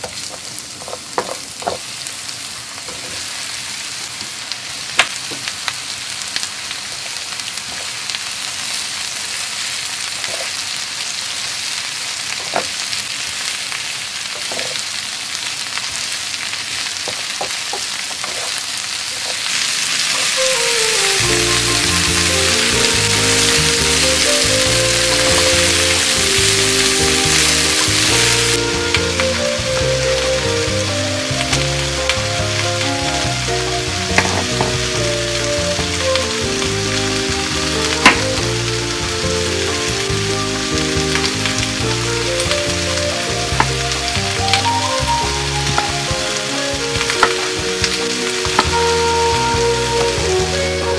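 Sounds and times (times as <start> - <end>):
vegetables sizzling in pan: 0.0 - 50.9
background music: 20.3 - 50.9.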